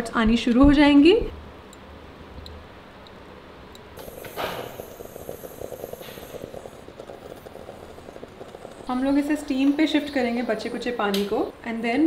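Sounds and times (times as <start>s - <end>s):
faint machine hum: 0.0s - 12.0s
espresso machine hissing and gurgling: 4.0s - 12.0s.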